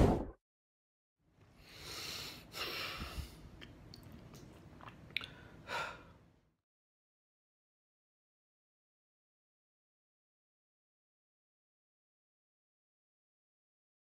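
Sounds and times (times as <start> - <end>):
close-up breathing: 1.6 - 3.5.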